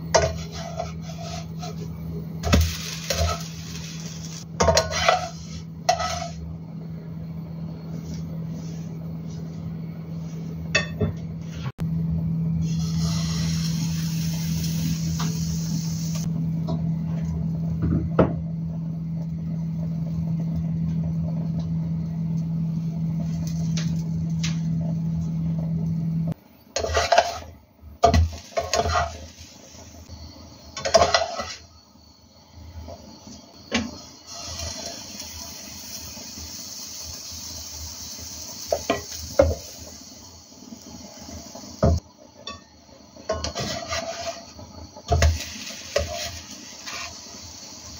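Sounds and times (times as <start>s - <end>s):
steady low hum: 0.0s - 34.3s
faint sizzle: 0.0s - 47.9s
spatula scraping frying pan: 0.2s - 1.9s, 2.5s - 6.4s, 26.8s - 27.5s, 28.1s - 29.5s, 30.8s - 31.7s, 43.3s - 44.5s.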